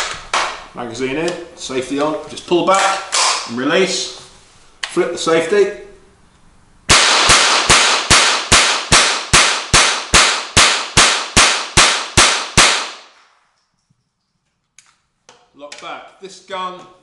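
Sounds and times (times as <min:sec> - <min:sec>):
rifle shots with echo: 0:06.9 - 0:13.2.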